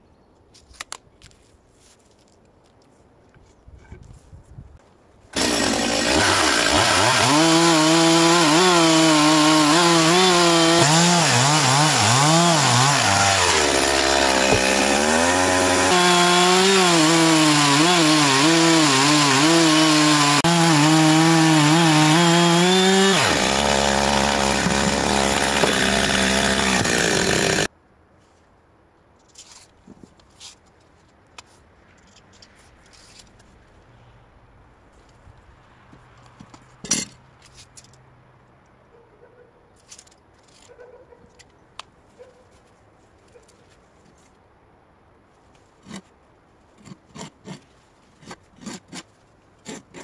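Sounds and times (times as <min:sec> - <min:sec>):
chainsaw cutting log: 0:05.3 - 0:27.7, 0:48.2 - 0:50.0.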